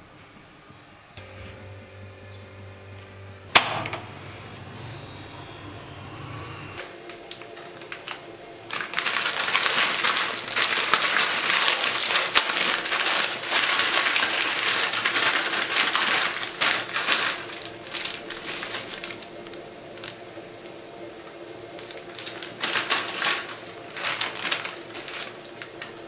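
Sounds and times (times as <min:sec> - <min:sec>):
plastic packet crinkling: 0:07.0 - 0:20.3, 0:21.2 - 0:26.0.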